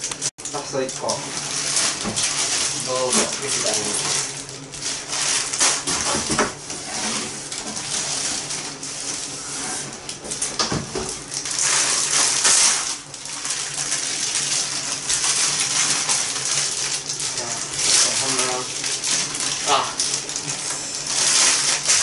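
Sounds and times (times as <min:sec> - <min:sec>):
plastic wrappers crinkling: 0:00.4 - 0:05.9.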